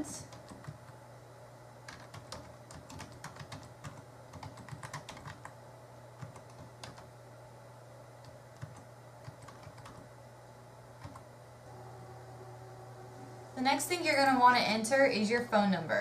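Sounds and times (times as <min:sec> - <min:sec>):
steady low hum: 0:00.0 - 0:16.0
typing on computer keyboard: 0:00.2 - 0:01.0, 0:01.9 - 0:05.6, 0:06.2 - 0:07.1, 0:08.2 - 0:10.1, 0:11.0 - 0:11.3.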